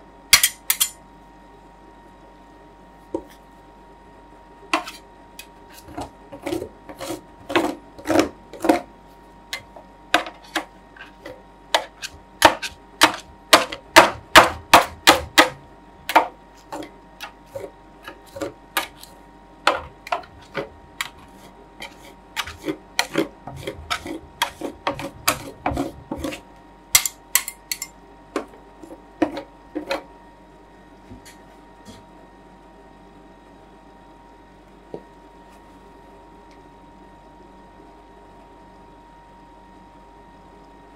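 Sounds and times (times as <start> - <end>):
metal spatulas tapping and scraping: 0.4 - 1.0, 4.7 - 8.8, 9.6 - 15.5, 19.7 - 26.4, 27.0 - 28.5.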